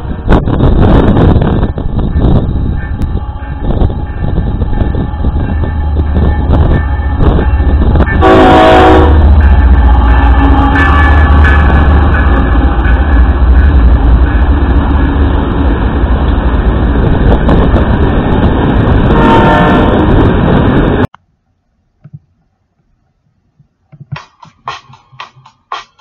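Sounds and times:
train wheels on rails: 0.0s - 21.1s
diesel locomotives rumbling: 0.0s - 21.2s.

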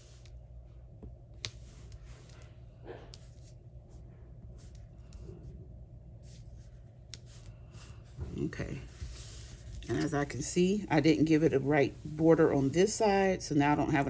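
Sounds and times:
steady low hum: 0.0s - 14.0s
paper rustling and scraping: 6.2s - 10.4s.

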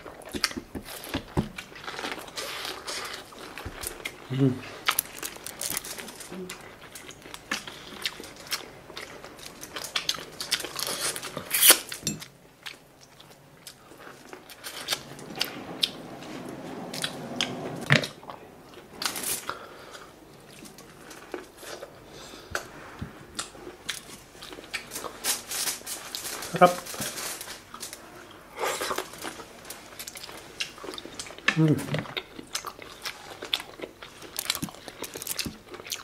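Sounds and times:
chewing and smacking: 0.0s - 16.0s, 28.8s - 36.0s.

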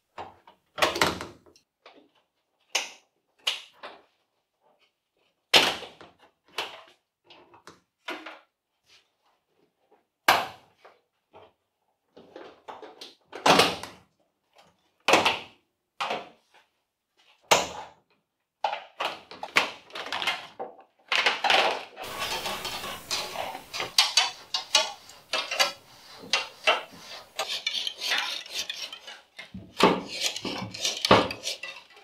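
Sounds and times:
clattering and scraping: 22.0s - 32.0s.

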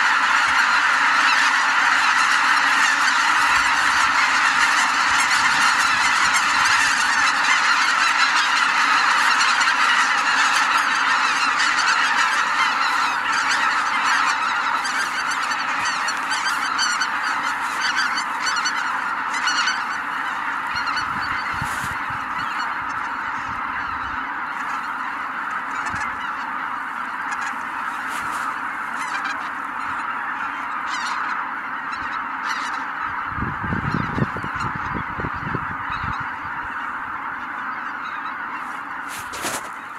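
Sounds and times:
geese honking: 0.0s - 39.9s.

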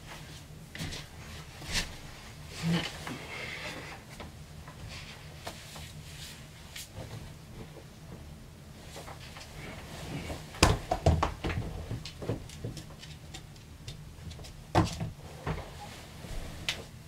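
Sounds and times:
comforter rustling: 8.8s - 11.0s, 15.1s - 17.0s.

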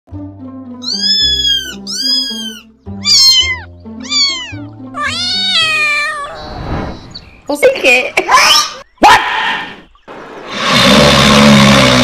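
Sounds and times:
background music: 0.1s - 6.4s
cat meowing: 0.8s - 6.5s.

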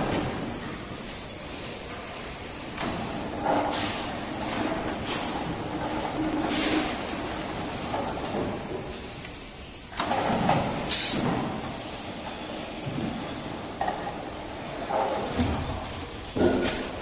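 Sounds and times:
machine clatter and rumble: 0.0s - 17.0s
short loud hiss: 10.9s - 11.3s.

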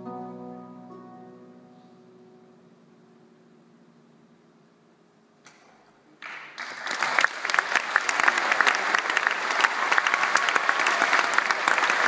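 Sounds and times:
large crowd applauding: 6.2s - 12.0s.

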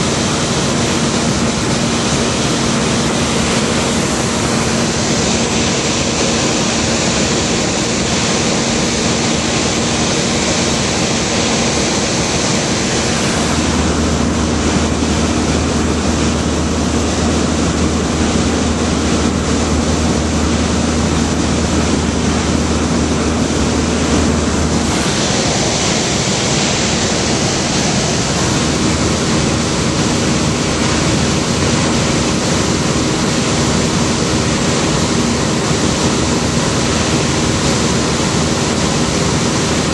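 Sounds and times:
light aircraft engine drone: 0.0s - 39.9s
rushing air: 0.0s - 39.9s
deep hum: 12.1s - 33.3s.

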